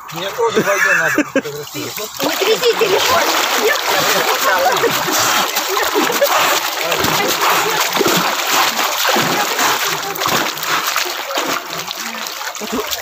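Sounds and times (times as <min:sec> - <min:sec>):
water splashing from swimming: 0:00.0 - 0:13.0.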